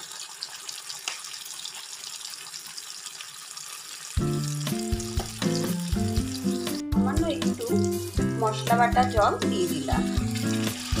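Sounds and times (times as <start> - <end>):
paste sizzling in hot oil: 0.0 - 11.0
background music: 4.2 - 11.0.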